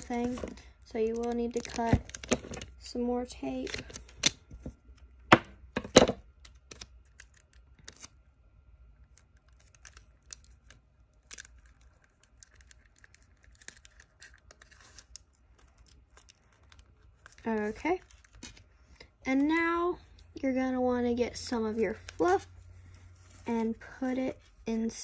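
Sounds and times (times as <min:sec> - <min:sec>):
tape crinkling: 0:00.0 - 0:02.8, 0:03.4 - 0:05.1, 0:06.3 - 0:08.3, 0:09.0 - 0:19.0.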